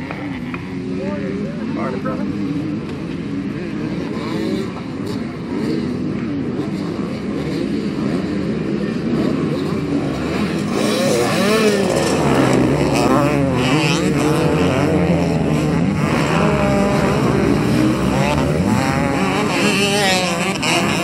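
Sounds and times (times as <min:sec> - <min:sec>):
motocross bike engines revving: 0:00.0 - 0:21.0.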